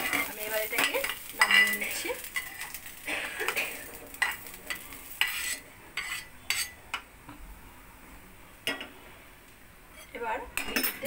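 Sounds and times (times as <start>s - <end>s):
light sizzle of hot oil: 0.0s - 7.4s.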